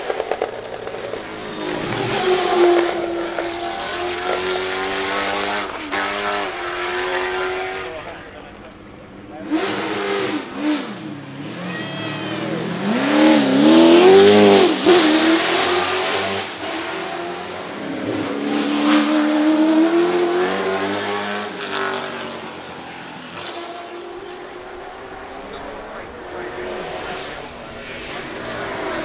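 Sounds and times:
race car engine revving: 0.0 - 29.0.

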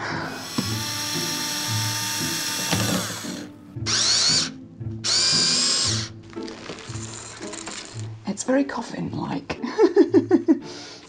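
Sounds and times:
electric screwdriver whirring: 0.4 - 6.1.

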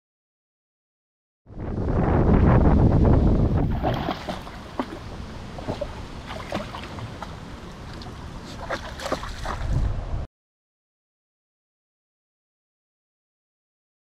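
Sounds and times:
wind noise on microphone: 1.5 - 10.3
dog splashing in shallow water: 3.5 - 9.9.

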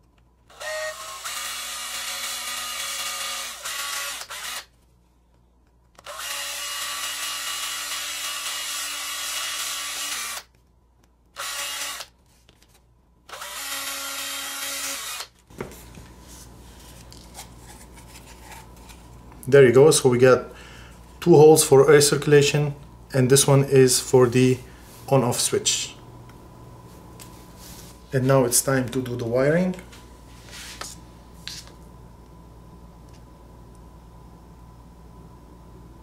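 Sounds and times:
cordless drill drilling plastic: 0.5 - 4.7, 6.0 - 10.5, 11.4 - 12.1, 13.3 - 15.3.

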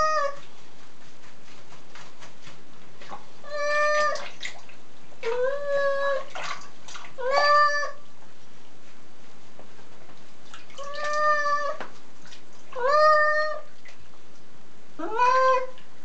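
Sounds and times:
cat meowing: 0.0 - 0.4, 3.4 - 4.3, 7.2 - 8.0, 10.8 - 11.8, 12.8 - 13.7, 15.0 - 15.8
water splashing softly: 1.4 - 8.4, 9.5 - 14.5.

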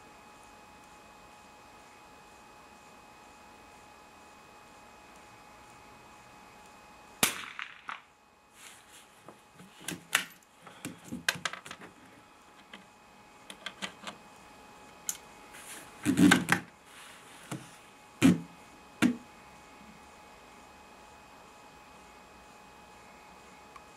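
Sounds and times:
rifle shots: 7.2 - 8.0.

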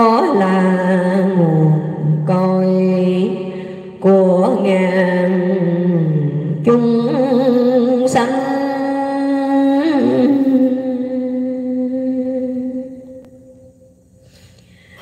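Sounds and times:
woman singing into a microphone: 0.0 - 13.2.

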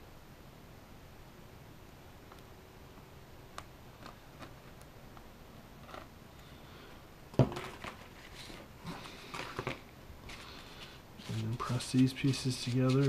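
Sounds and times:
hands handling foam parts: 7.4 - 13.0.

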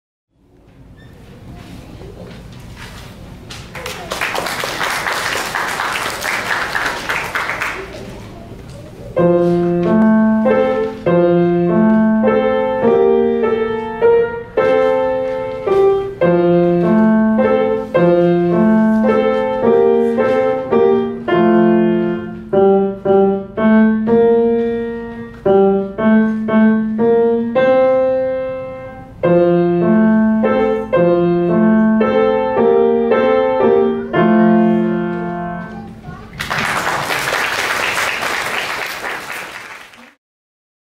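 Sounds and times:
solo piano tune: 9.0 - 36.0.

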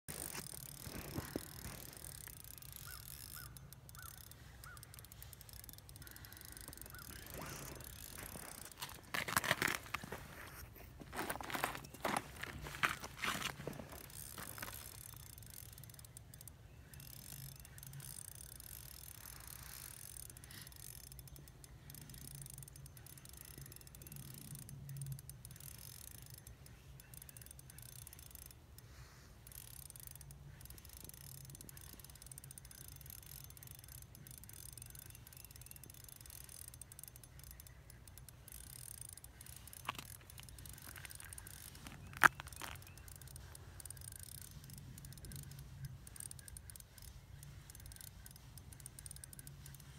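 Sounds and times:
sharp clicks: 0.1 - 10.3, 29.5 - 49.9
faint open-air background: 0.1 - 49.9
fishing rod and reel handling: 0.1 - 49.9.

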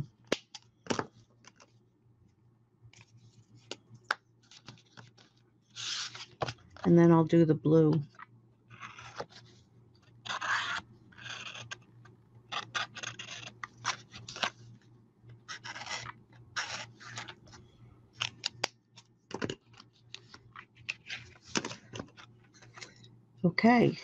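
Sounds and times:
marker scratching on card: 10.3 - 11.8.

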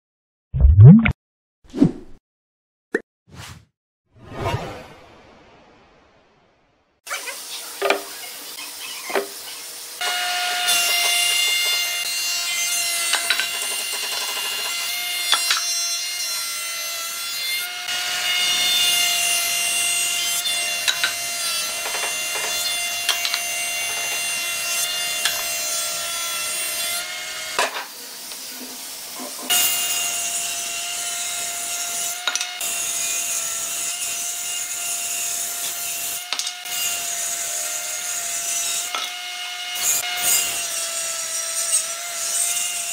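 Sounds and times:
planer cutting wood: 9.2 - 42.9.

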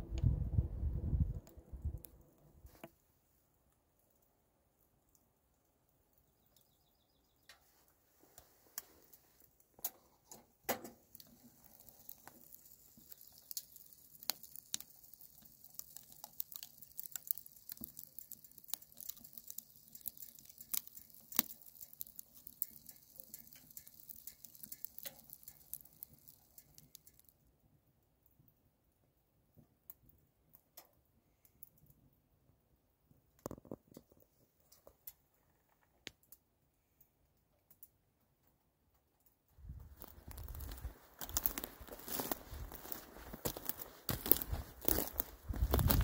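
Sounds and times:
wood fire crackling: 0.0 - 46.0
faint fire hiss: 1.2 - 27.6.

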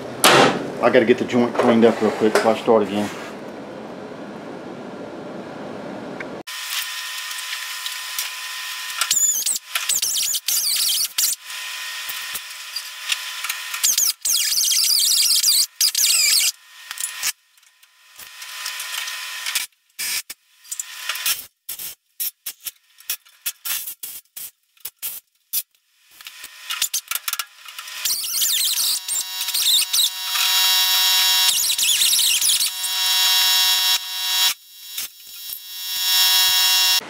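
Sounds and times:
angle grinder on steel: 26.2 - 37.0.

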